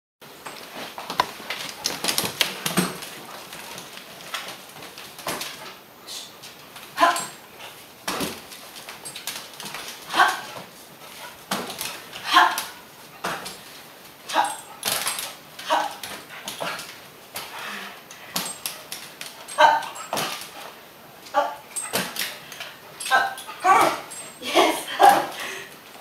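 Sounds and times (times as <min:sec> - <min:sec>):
dog barking and yelping: 0:07.0 - 0:07.4, 0:10.1 - 0:10.6, 0:12.2 - 0:12.8, 0:14.3 - 0:14.8, 0:15.6 - 0:16.0, 0:19.4 - 0:20.3, 0:21.3 - 0:22.2, 0:23.1 - 0:25.2.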